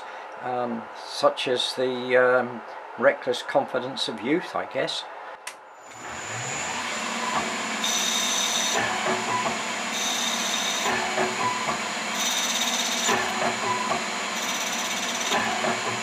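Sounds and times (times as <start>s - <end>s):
high whine of drive motors: 5.7s - 16.0s
lathe running hum: 5.8s - 16.0s.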